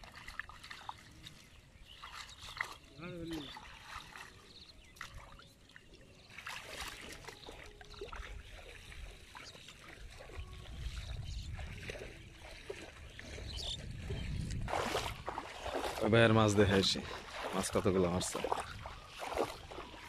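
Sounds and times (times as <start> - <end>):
water dripping: 0.0 - 1.4
shallow water splashing: 0.0 - 20.0.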